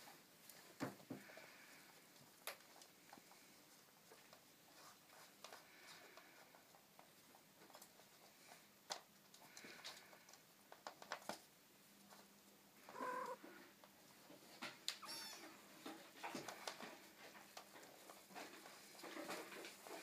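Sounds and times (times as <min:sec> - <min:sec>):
paws scrabbling on wooden floor: 0:02.1 - 0:11.4
kitten mewing: 0:12.8 - 0:13.4.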